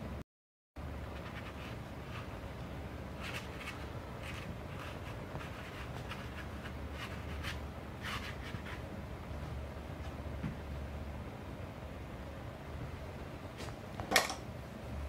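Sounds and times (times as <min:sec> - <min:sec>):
steady low hum: 0:00.8 - 0:15.0
brush strokes on paper: 0:03.2 - 0:08.8.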